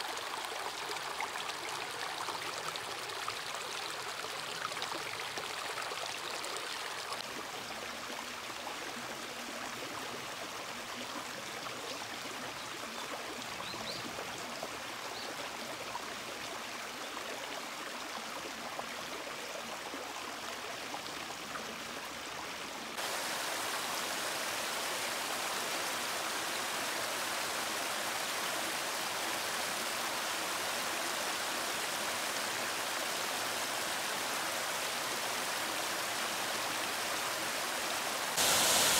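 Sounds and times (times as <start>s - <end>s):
stream babbling over stones: 0.0s - 11.5s, 17.6s - 38.9s
waterfall pouring into pool: 22.9s - 38.9s.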